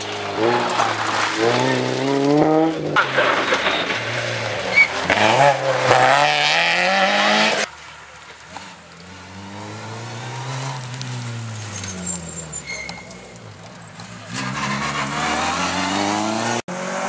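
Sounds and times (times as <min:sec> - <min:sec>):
distant rally car engine: 0:00.0 - 0:17.0
rally car engine at full throttle: 0:00.0 - 0:17.0.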